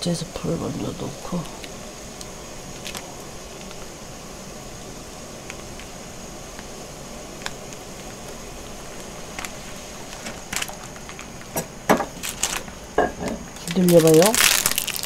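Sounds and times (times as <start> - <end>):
burner hiss: 0.0 - 15.0.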